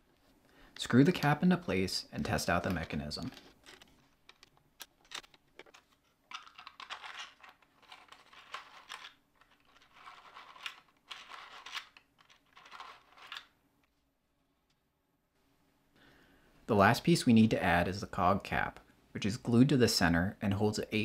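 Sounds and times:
plastic scraping and rattling: 0:02.6 - 0:13.5.

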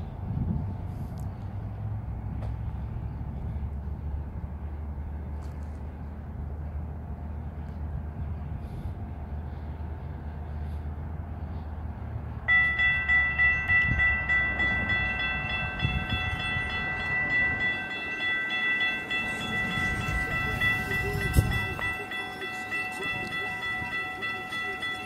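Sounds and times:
road traffic rumble: 0:00.0 - 0:25.0
crossing bells ringing: 0:12.4 - 0:25.0.

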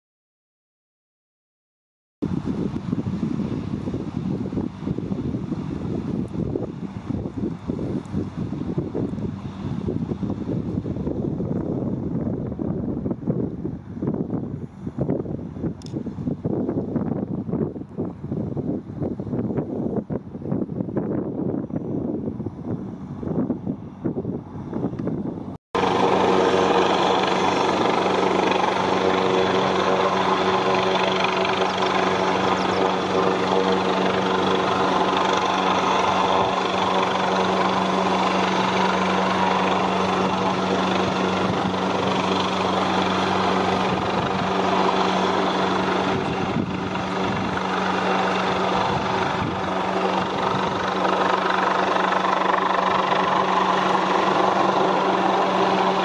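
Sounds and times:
helicopter hovering: 0:25.8 - 0:56.0.

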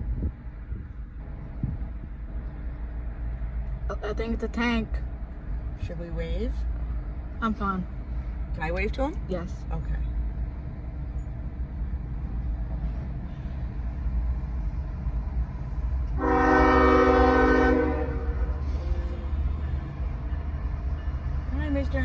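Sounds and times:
low rumble: 0:00.0 - 0:04.0
locomotive air horn blast: 0:16.1 - 0:19.6.

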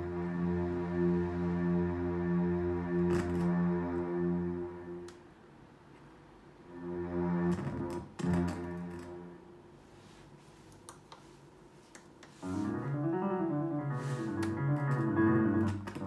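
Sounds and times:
piano playing moving notes: 0:00.0 - 0:05.1, 0:12.4 - 0:16.0
piano chords: 0:00.0 - 0:05.2, 0:12.4 - 0:16.0.

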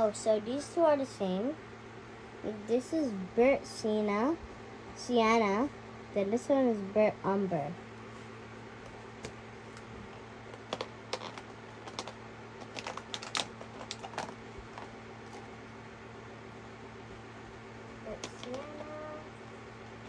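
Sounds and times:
steady low hum: 0:00.0 - 0:20.0
paint tubes clicking and tapping: 0:10.5 - 0:15.4.

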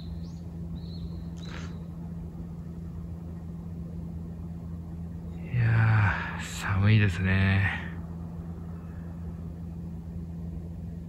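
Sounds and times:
bird chirp: 0:00.0 - 0:02.2, 0:05.1 - 0:06.2
low mechanical hum: 0:00.0 - 0:11.0.

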